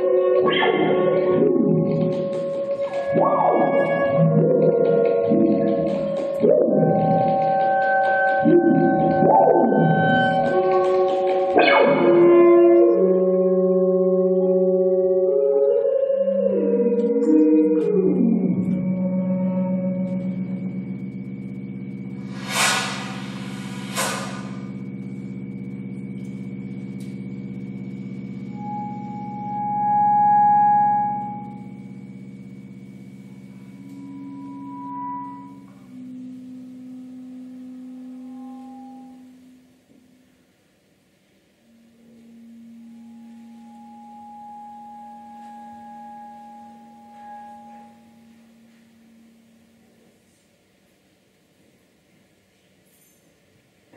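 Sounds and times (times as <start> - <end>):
low drone with pulsing flutter: 18.4 - 38.4
noisy swooshes: 22.2 - 24.9
high held note: 22.2 - 25.2
held clarinet and electronic tones: 41.6 - 49.5.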